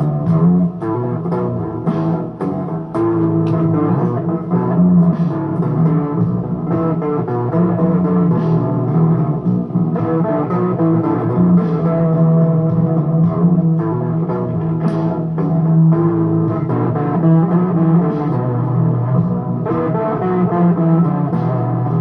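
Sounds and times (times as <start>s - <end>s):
electric guitar playing blues: 0.0s - 22.0s.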